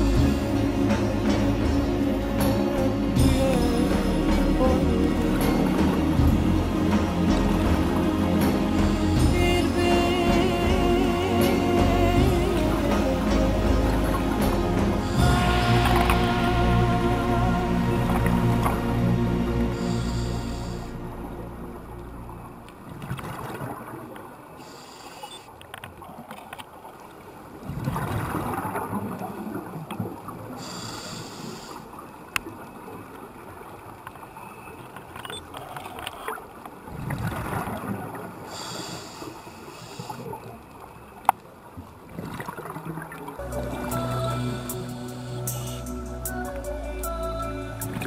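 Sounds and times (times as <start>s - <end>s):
regulator breath hiss: 19.6s - 21.2s, 24.6s - 25.5s, 30.6s - 32.0s, 38.5s - 40.5s, 43.8s - 46.7s.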